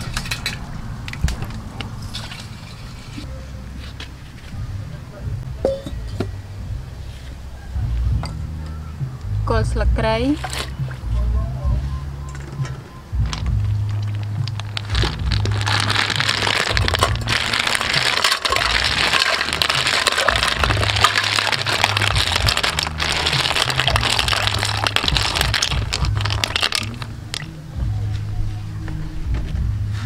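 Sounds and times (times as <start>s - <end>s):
background music: 3.2s - 30.0s
snail shells clattering and splashing: 13.6s - 27.5s.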